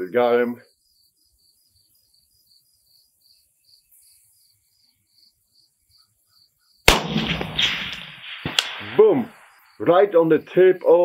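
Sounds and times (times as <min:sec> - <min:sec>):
insects chirping: 0:00.0 - 0:11.0
rifle shot with echoes: 0:06.9 - 0:09.8
sharp crack: 0:06.9 - 0:10.0.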